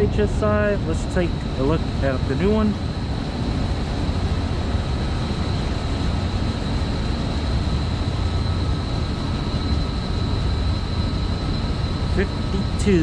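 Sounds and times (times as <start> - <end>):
high-pitched equipment whine: 0.0 - 13.0
low rumbling wind: 0.0 - 13.0.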